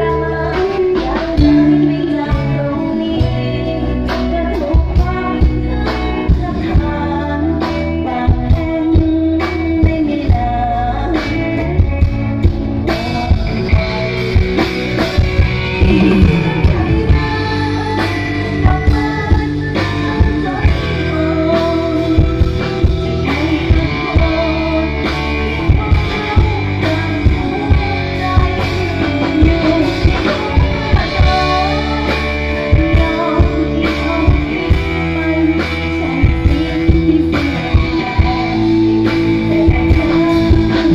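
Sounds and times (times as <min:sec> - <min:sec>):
woman singing: 0:00.0 - 0:12.0, 0:15.7 - 0:40.9
live band playing: 0:00.0 - 0:40.9
drum kit beat: 0:15.5 - 0:18.2.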